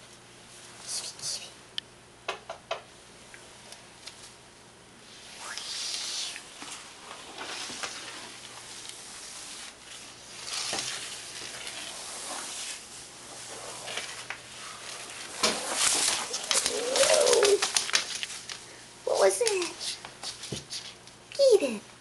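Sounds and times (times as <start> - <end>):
towel sliding on hard floor: 5.9 - 17.4.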